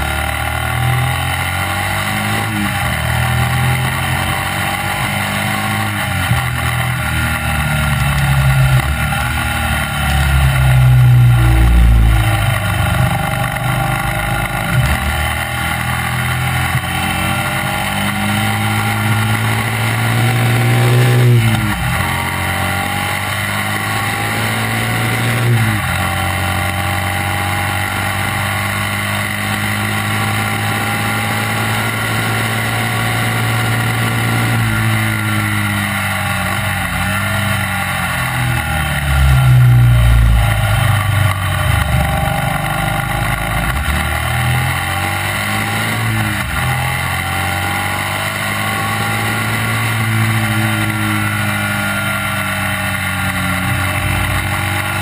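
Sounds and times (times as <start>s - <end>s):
racing engine running hard: 0.0s - 55.0s.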